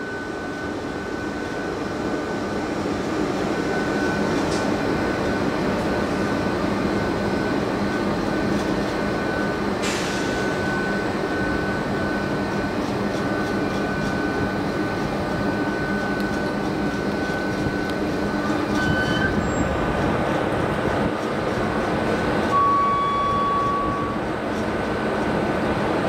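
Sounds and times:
electric locomotive rumbling hum: 0:00.0 - 0:26.0
short high squeal: 0:18.4 - 0:19.7, 0:22.5 - 0:24.2.

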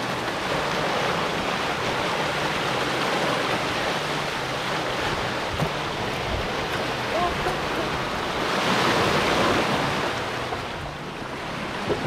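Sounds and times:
water rushing past boat hull: 0:00.0 - 0:12.0.

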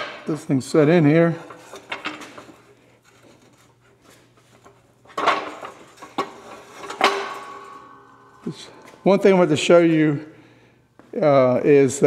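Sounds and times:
ringing metal clanks: 0:06.9 - 0:09.3.

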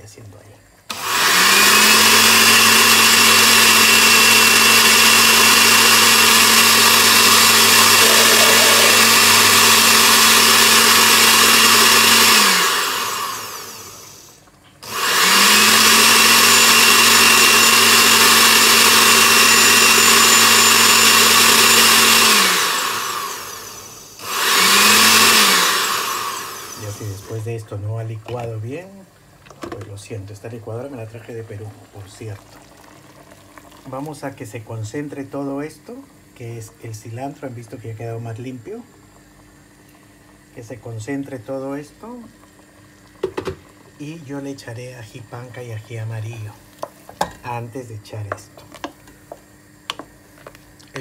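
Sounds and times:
blender motor running: 0:00.9 - 0:27.4.

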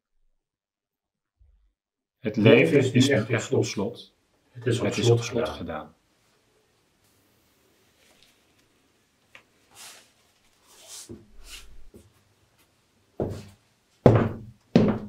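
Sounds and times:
soft rustling and shuffling: 0:06.1 - 0:14.0
loud sharp knocks: 0:14.1 - 0:15.0.

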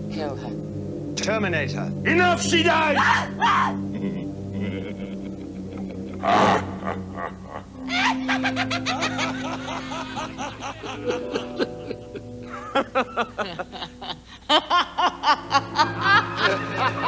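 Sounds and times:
music with long held notes: 0:00.0 - 0:17.0
sinister cackling laughter: 0:03.9 - 0:17.0.

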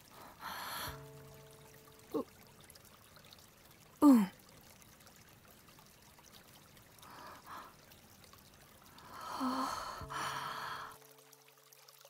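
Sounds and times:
faint low tones: 0:00.0 - 0:04.7
person sighing: 0:09.2 - 0:11.0.

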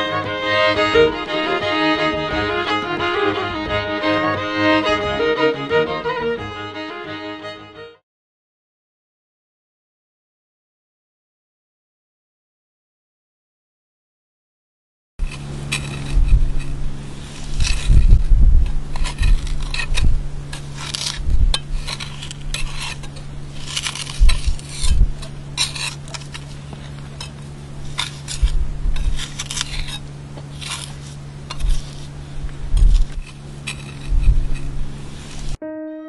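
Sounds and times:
steady low hum: 0:00.0 - 0:07.6, 0:15.2 - 0:35.6
trowels scraping stone and mortar: 0:15.2 - 0:35.6.

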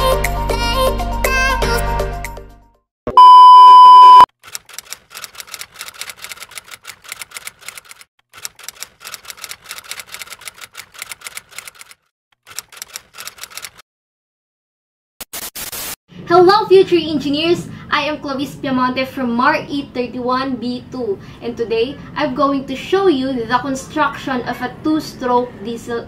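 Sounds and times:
electronic beep: 0:03.1 - 0:04.3.

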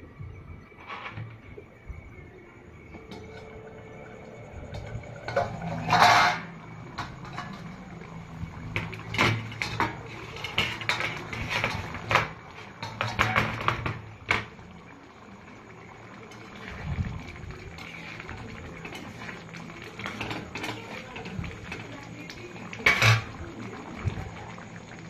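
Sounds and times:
steel lid clattering: 0:04.7 - 0:08.1, 0:08.7 - 0:14.5, 0:22.8 - 0:23.4
metal spatula scraping steel pan: 0:05.2 - 0:07.7.

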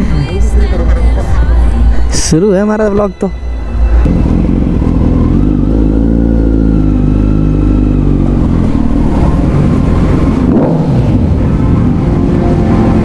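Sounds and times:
motorcycle engine at low revs: 0:04.1 - 0:13.0.

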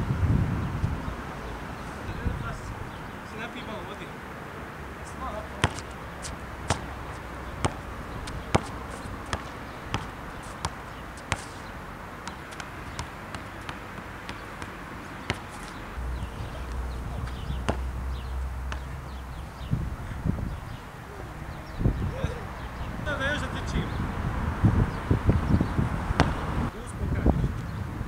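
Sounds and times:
wind rumble on microphone: 0:00.0 - 0:03.2, 0:15.7 - 0:28.0
basketball bouncing on asphalt: 0:05.5 - 0:19.4, 0:25.3 - 0:26.5.

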